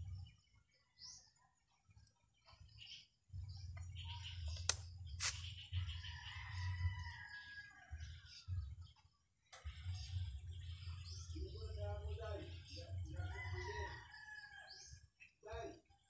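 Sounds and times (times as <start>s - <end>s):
small birds chirping: 0.0s - 16.0s
sharp clicks: 4.6s - 5.4s
faint rooster crowing: 5.9s - 8.6s, 13.1s - 15.0s.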